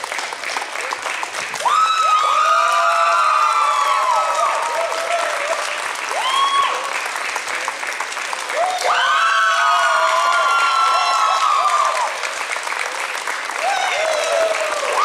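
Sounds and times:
audience applauding: 0:00.0 - 0:15.0
voices cheering: 0:00.8 - 0:07.8, 0:08.4 - 0:15.0.

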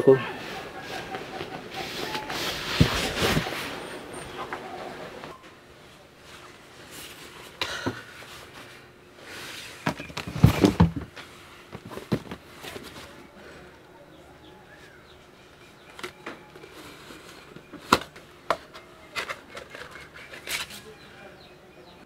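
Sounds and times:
rummaging through contents: 0:00.5 - 0:05.4, 0:09.6 - 0:13.3, 0:15.6 - 0:21.1.

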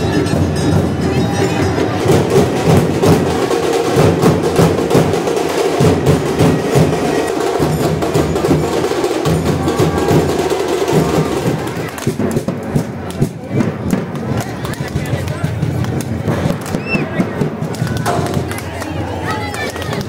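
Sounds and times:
drums beaten: 0:00.0 - 0:20.0
loud crowd din: 0:00.0 - 0:20.0.

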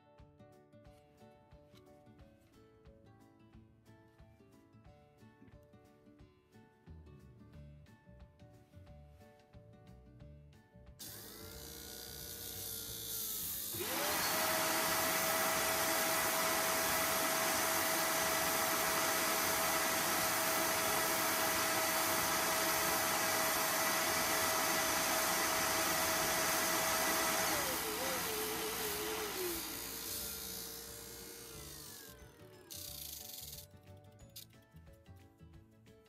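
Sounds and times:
disc sander whining: 0:11.1 - 0:33.6.

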